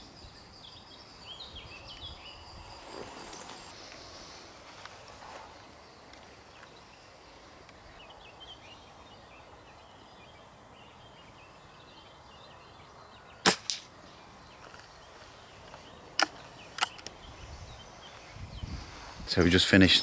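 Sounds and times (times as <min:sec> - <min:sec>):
faint birdsong: 0:00.0 - 0:20.0
air rifle shot: 0:13.4 - 0:13.9.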